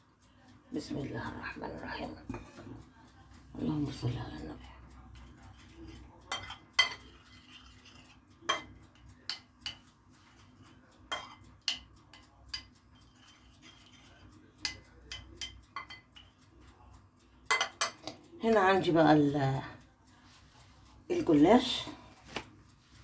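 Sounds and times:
metal spoon clinking on plate: 6.3 - 9.9, 11.1 - 16.4, 17.5 - 18.2.

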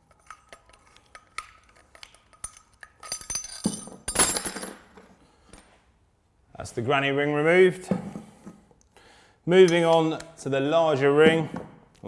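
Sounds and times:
metal parts clattering on table: 1.9 - 5.7.

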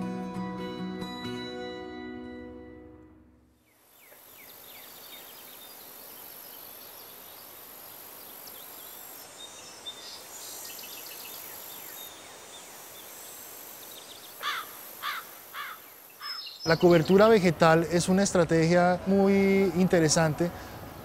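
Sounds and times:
insects buzzing: 3.6 - 17.6
steady hiss: 3.6 - 21.0
birds chirping: 3.7 - 20.6.

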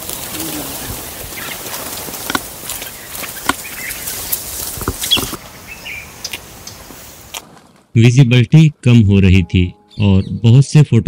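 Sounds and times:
bird chirps: 2.7 - 4.4, 5.0 - 6.9, 9.4 - 10.6.

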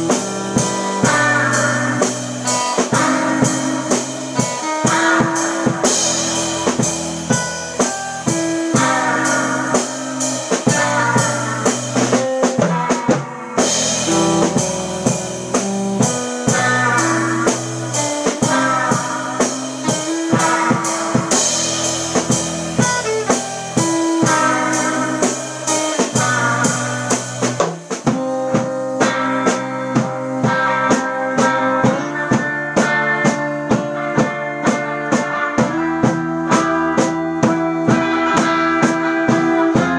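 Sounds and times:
electric bass: 0.0 - 12.9, 13.6 - 39.9
drum kit beat: 0.0 - 39.9
electric guitar melody: 0.0 - 39.9.

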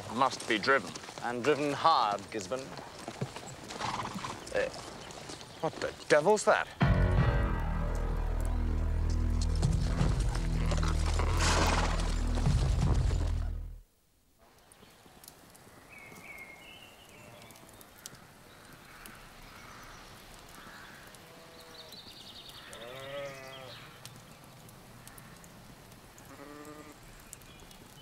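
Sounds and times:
faint birdsong chirping: 0.2 - 6.8, 14.5 - 28.0
sheep bleating: 22.7 - 23.7, 26.2 - 27.0.

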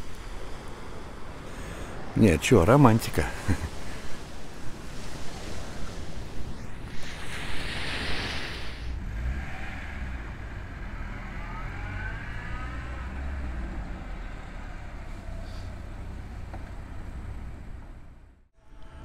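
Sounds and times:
rush of noise: 0.0 - 15.7
engine whine: 8.8 - 19.0
vehicle engine rumbling: 8.8 - 19.0.

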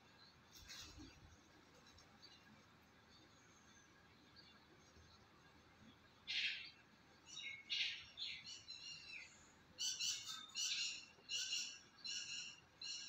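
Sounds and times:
bird chirps and calls: 6.3 - 13.0.

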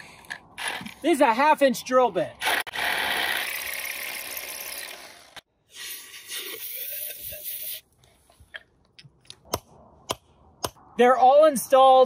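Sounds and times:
hammer drill boring into rock: 2.4 - 5.4.

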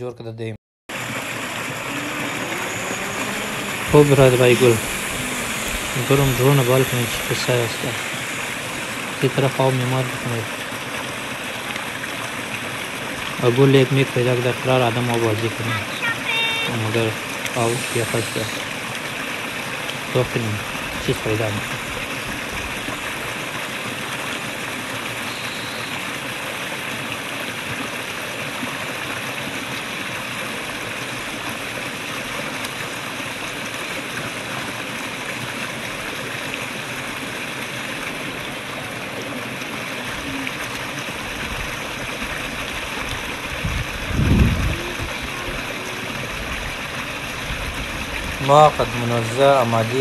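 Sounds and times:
stream splashing over stones: 0.9 - 50.0
low rumble: 1.1 - 10.7.

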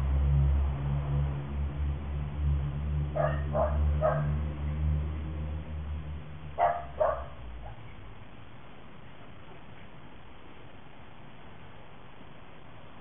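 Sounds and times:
dog barking: 3.2 - 4.4, 6.6 - 7.9.

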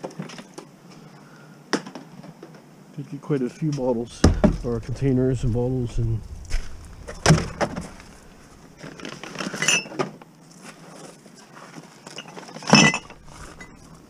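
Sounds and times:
glass bottles clinking: 12.1 - 13.9.

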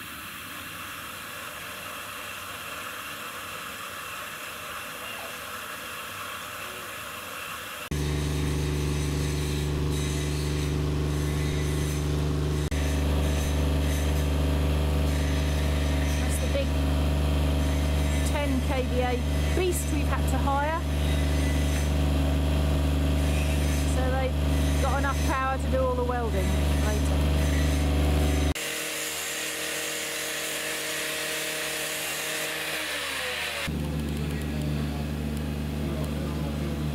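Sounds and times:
generator engine humming: 7.9 - 36.9.

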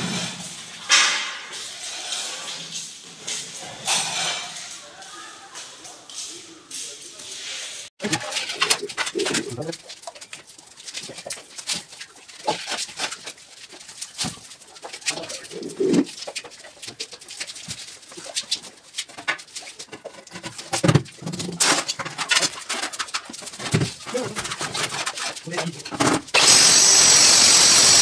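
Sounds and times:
trowel scraping cement mix: 7.4 - 27.1.

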